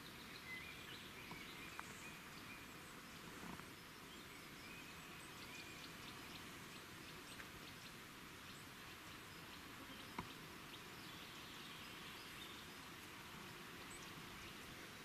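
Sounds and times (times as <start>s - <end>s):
steady low hiss: 0.0s - 15.0s
faint ticks: 10.0s - 10.4s.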